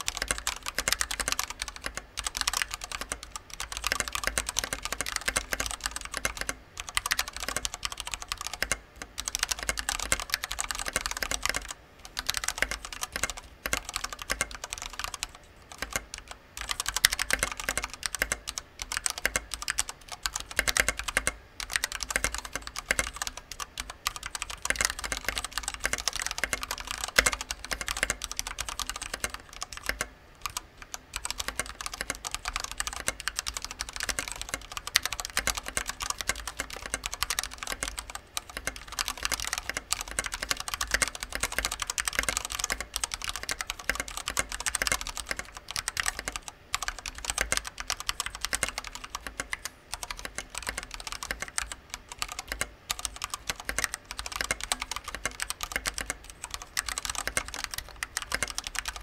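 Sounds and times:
fast typing on mechanical keyboard: 0.0 - 59.0.

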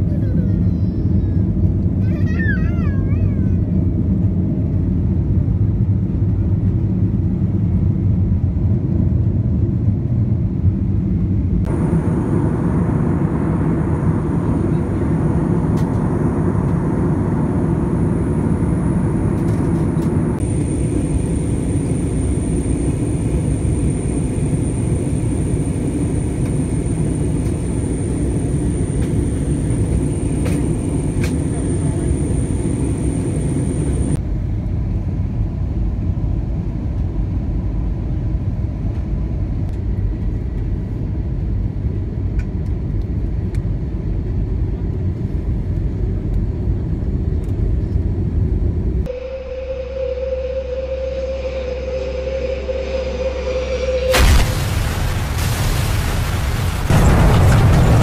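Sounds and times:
jet engine cabin rumble: 0.0 - 49.2, 54.1 - 58.0
rushing air: 11.7 - 34.2, 51.2 - 58.0.

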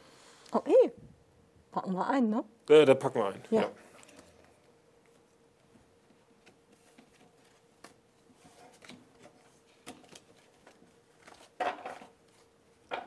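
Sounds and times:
faint steady hum: 0.0 - 13.0
papers and cards rustling: 3.8 - 13.0.

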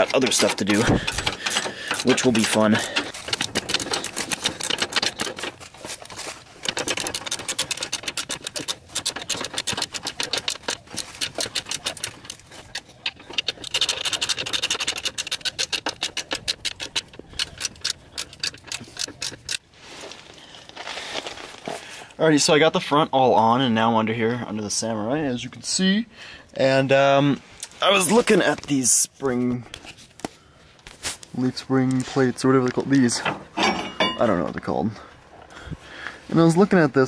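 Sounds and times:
ratchet wrench clicking: 0.2 - 5.5.

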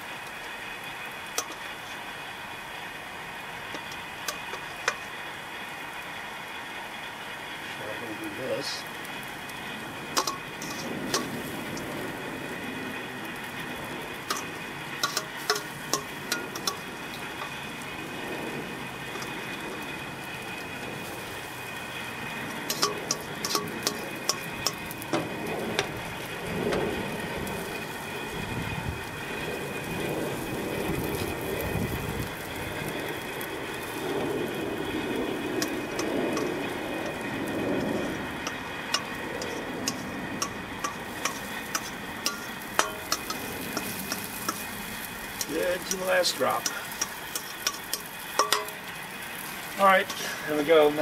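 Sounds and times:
sizzling hiss on grill: 0.0 - 51.0
metal tongs scraping steel bowl: 10.1 - 11.9, 14.2 - 17.5, 22.5 - 25.0, 38.0 - 44.7, 45.3 - 48.8, 49.8 - 50.5.

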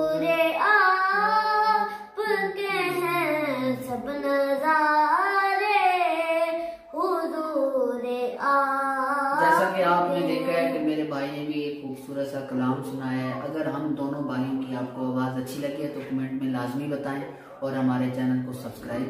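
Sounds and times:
young man singing devotional verse: 0.0 - 11.4.

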